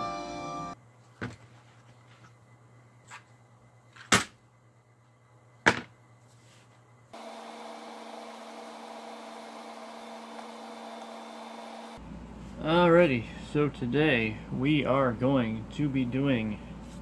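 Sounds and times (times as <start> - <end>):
steady electrical hum: 11.9 - 17.0.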